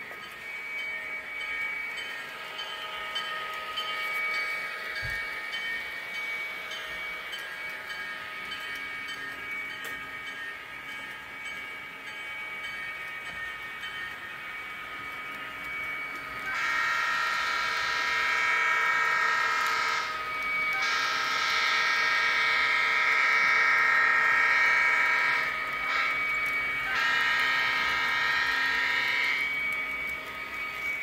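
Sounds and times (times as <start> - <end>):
locomotive horn blasts: 16.5 - 20.2, 20.8 - 29.5.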